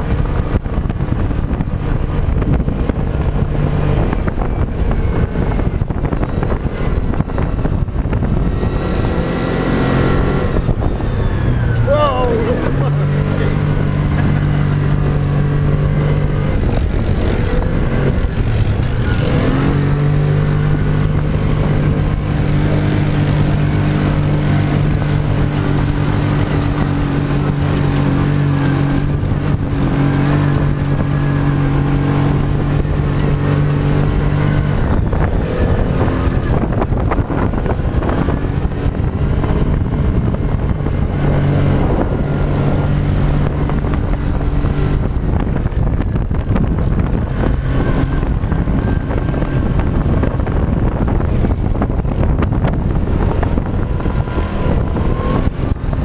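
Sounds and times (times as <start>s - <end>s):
dune buggy engine running: 0.0s - 56.0s
wind and driving noise: 0.0s - 56.0s.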